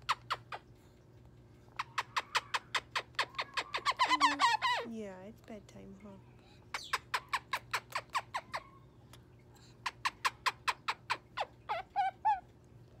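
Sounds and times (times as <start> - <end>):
cockatoo chirping: 1.7 - 4.9, 6.7 - 8.8, 9.8 - 12.4
cockatoo voice-like calls: 1.8 - 4.9.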